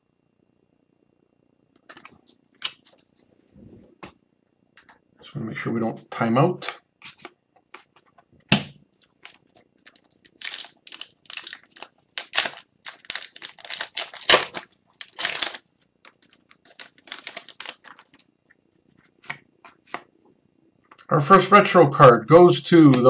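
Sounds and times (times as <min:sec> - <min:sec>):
cards rustling and clicking: 0:01.8 - 0:03.1, 0:06.6 - 0:08.3, 0:09.0 - 0:20.1
foil wrapper crinkling: 0:08.9 - 0:18.3.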